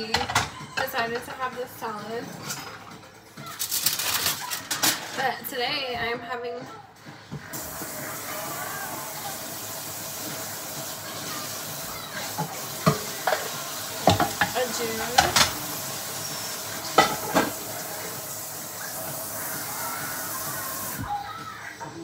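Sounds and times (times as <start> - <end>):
utensil and dishes knocking: 0.0 - 1.4, 12.2 - 17.8.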